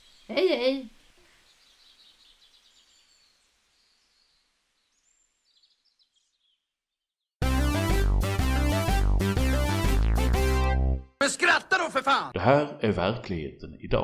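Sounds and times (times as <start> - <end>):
birds chirping: 0.0 - 7.0
synth keyboard music jingle: 7.4 - 11.1.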